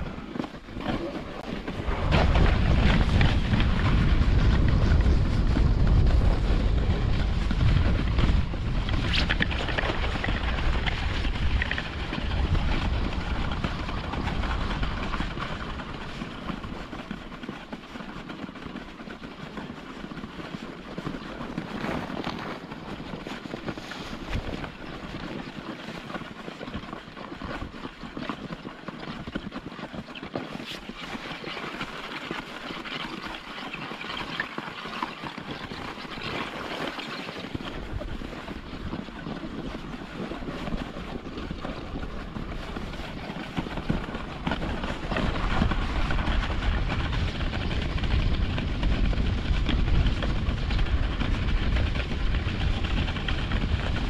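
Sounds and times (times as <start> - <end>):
wind on microphone: 0.0 - 17.4, 21.4 - 25.5, 35.2 - 54.0
sled runners scraping over snow: 0.0 - 54.0.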